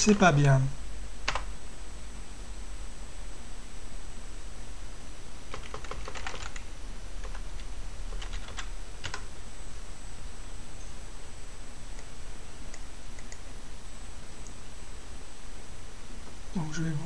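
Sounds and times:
steady low hum: 0:00.0 - 0:17.0
computer keyboard typing: 0:01.3 - 0:01.5, 0:05.5 - 0:09.3, 0:13.2 - 0:13.4.

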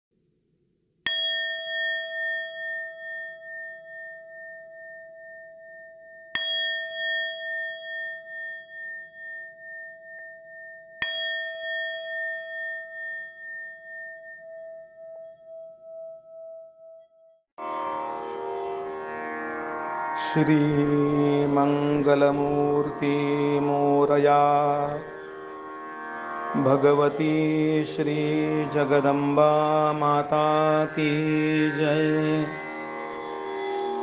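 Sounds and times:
struck metal bell tone: 0:01.1 - 0:17.4.

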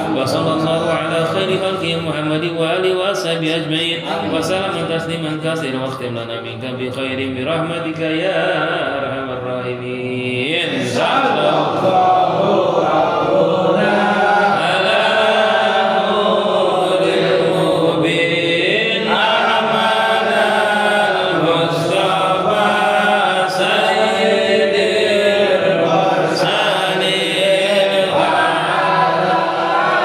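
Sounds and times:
men chanting: 0:03.8 - 0:05.1, 0:07.6 - 0:30.0.

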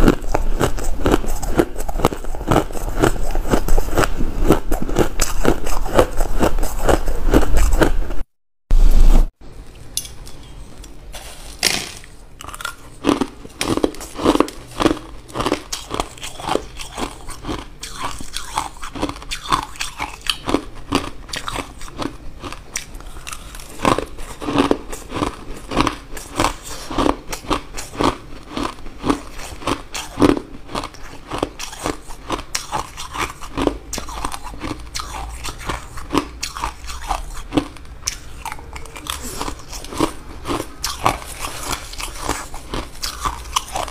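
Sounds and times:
ice being chewed: 0:00.0 - 0:08.2, 0:12.4 - 0:43.9.

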